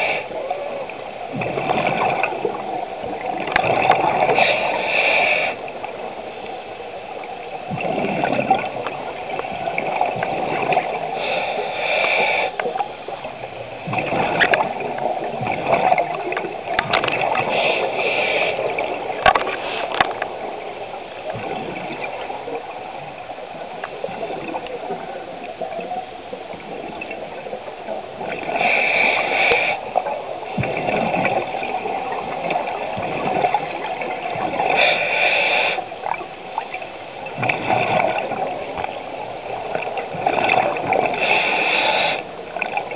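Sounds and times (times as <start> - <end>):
exhaled bubbles gurgling: 0.0 - 42.9
regulator hiss: 11.0 - 13.2, 34.6 - 36.2, 41.1 - 42.6.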